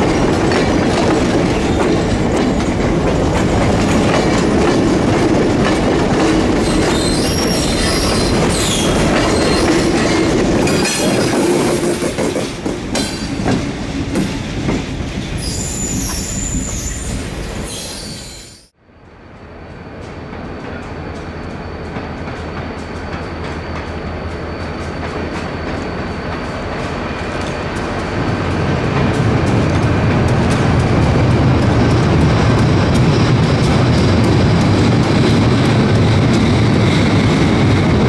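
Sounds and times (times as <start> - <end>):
train wheels clattering on rails: 0.0 - 16.8, 19.8 - 38.0
diesel locomotive passing: 0.0 - 38.0
wheel squeals: 6.6 - 11.4, 15.3 - 18.7.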